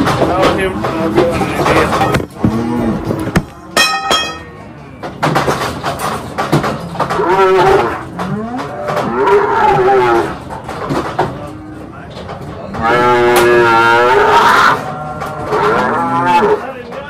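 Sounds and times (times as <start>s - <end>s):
knocks: 5.0s - 9.4s
calves bawling: 6.8s - 11.9s, 12.6s - 16.8s.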